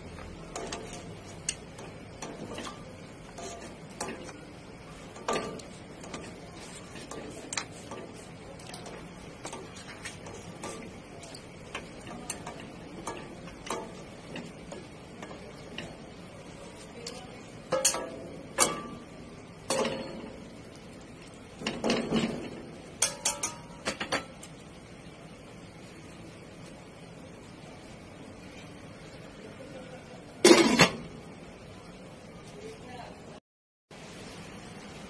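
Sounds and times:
metal spoon clinking on steel bowl: 23.0 - 24.0.

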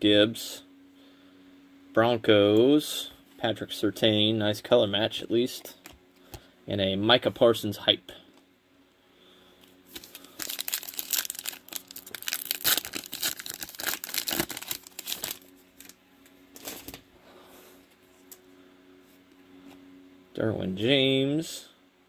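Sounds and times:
foil wrapper crackling: 9.9 - 17.0.

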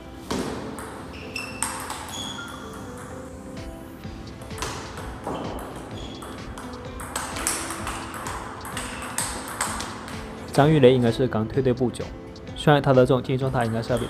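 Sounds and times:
background music with held notes: 0.0 - 14.0
table tennis ball hitting paddles: 0.2 - 11.2, 13.4 - 14.0
ball bouncing on table: 0.3 - 3.2, 4.2 - 10.6, 13.4 - 14.0.

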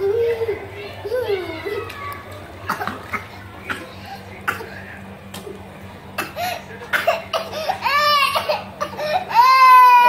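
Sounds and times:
young child crying: 7.8 - 10.0.

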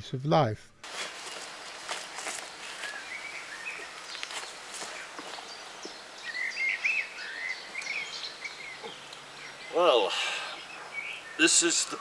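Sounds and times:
footsteps on loose soil: 0.8 - 7.9
songbird chirping: 0.8 - 12.0.

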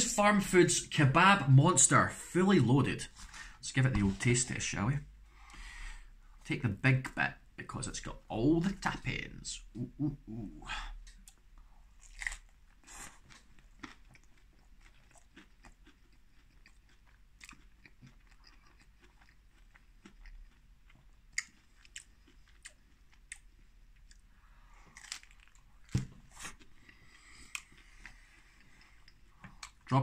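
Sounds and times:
person chewing: 11.0 - 29.9.

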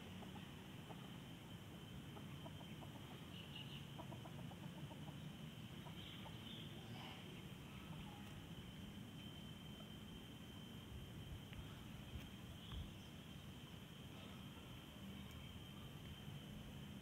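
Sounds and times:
faint animal calls: 0.0 - 8.6
faint high whine: 0.0 - 17.0.

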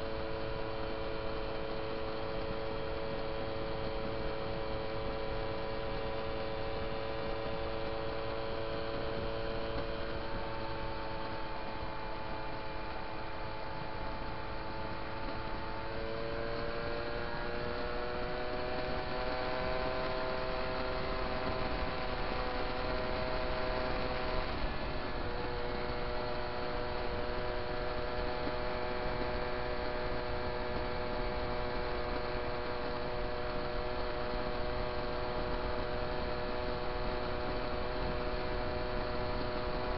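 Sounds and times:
moped engine droning whine: 0.0 - 39.9.

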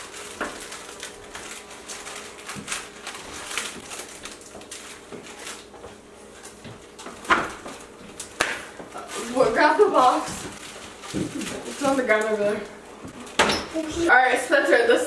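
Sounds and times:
plastic zip bag crinkling: 0.0 - 5.7, 9.0 - 12.6.

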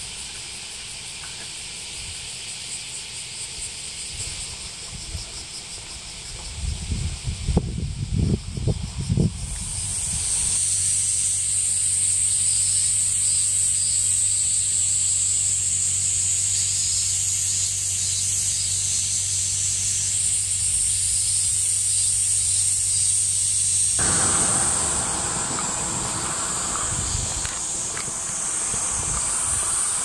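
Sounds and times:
cicadas buzzing: 0.0 - 30.0
low steady hum: 24.0 - 30.0
rough noise: 24.0 - 30.0.

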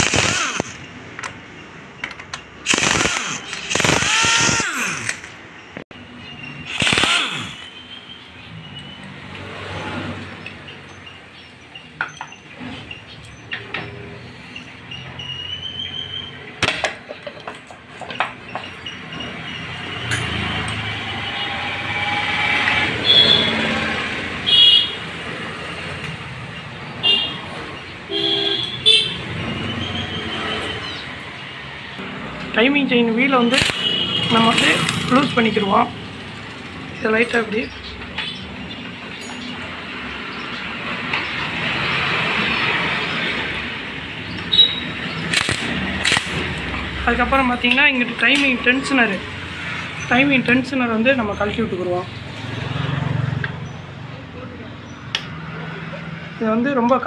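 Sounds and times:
sharp clicks: 0.0 - 1.4, 2.0 - 5.9, 6.7 - 7.7, 33.5 - 35.1, 44.3 - 46.8
vehicle passing by: 9.1 - 10.4, 19.4 - 27.8, 39.7 - 44.3, 44.9 - 56.7
sharp metal clinks: 20.0 - 20.8, 38.2 - 39.8.

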